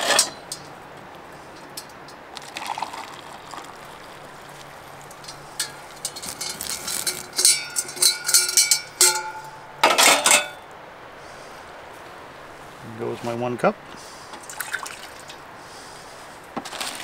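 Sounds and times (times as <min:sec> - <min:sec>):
metal cookware clinking: 0:00.0 - 0:00.7, 0:05.1 - 0:10.6.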